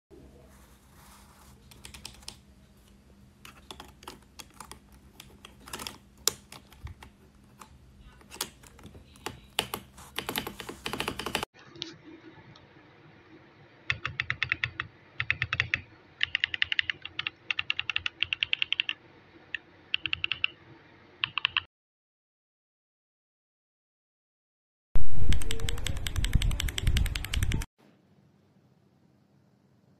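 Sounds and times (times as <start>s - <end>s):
typing on mechanical keyboard: 1.7s - 2.4s, 3.4s - 11.5s, 13.9s - 19.0s, 19.9s - 20.5s, 21.2s - 21.7s, 25.3s - 27.7s.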